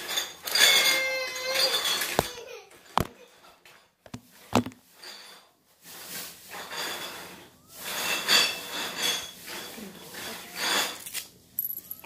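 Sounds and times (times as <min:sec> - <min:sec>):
microphone handling knocks: 0:04.1 - 0:04.8.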